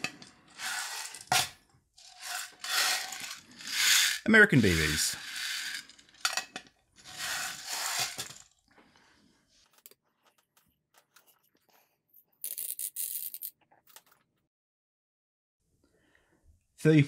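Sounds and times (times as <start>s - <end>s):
pellets rattling in metal tin: 0.0s - 6.4s, 7.0s - 8.6s.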